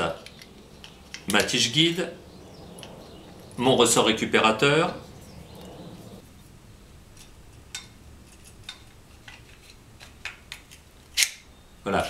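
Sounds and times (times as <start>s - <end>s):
pistol parts clicking: 8.5s - 11.5s.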